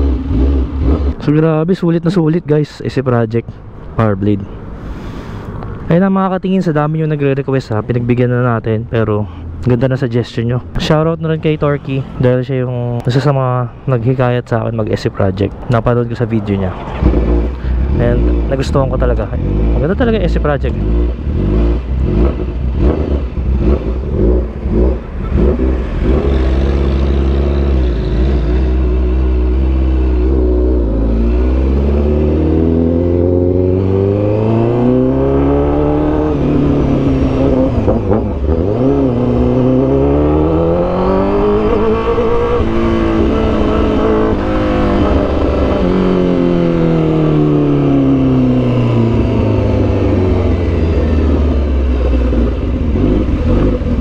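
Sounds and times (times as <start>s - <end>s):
motorcycle engine revving: 0.0s - 1.4s, 16.7s - 54.0s.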